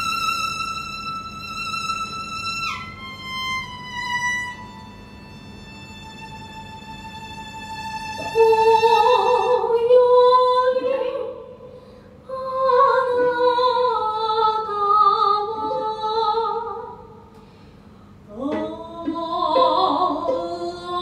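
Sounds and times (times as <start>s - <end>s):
woman singing with vibrato: 8.2s - 11.6s, 12.3s - 17.1s, 18.3s - 21.0s.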